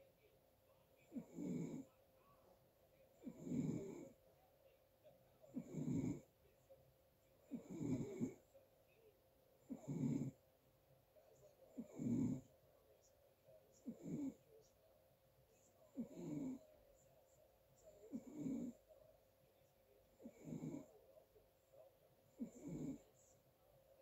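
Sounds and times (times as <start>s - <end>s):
person snoring: 1.1s - 1.9s, 3.2s - 4.2s, 5.5s - 6.2s, 7.5s - 8.4s, 9.7s - 10.4s, 15.9s - 16.6s, 18.1s - 18.8s, 20.2s - 20.9s, 22.4s - 23.1s.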